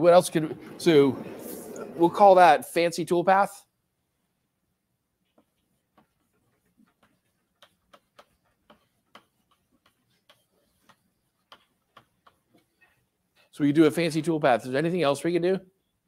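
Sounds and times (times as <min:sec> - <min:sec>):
chalk tapping on a blackboard: 0:05.2 - 0:14.3.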